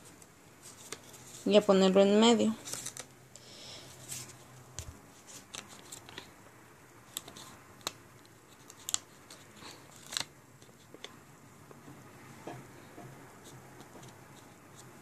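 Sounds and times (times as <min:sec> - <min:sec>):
paper rustling and ticking: 0:00.6 - 0:01.6, 0:02.5 - 0:03.1, 0:04.1 - 0:06.3, 0:07.1 - 0:11.2.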